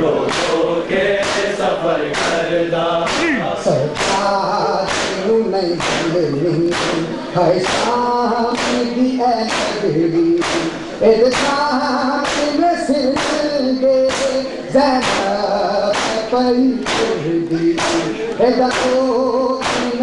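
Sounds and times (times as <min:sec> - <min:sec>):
men chanting a cappella: 0:00.0 - 0:20.0
hands slapping chests: 0:00.3 - 0:00.6, 0:01.2 - 0:02.4, 0:03.0 - 0:08.9, 0:09.5 - 0:09.8, 0:10.4 - 0:11.6, 0:14.1 - 0:14.4, 0:15.0 - 0:19.0, 0:19.6 - 0:20.0.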